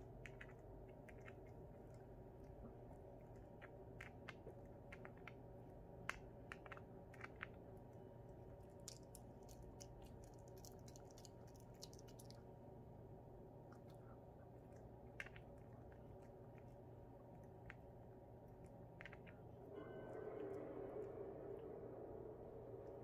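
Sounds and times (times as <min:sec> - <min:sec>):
puppy gnawing on hard treat: 0:00.0 - 0:05.4, 0:08.5 - 0:12.5, 0:13.7 - 0:19.6.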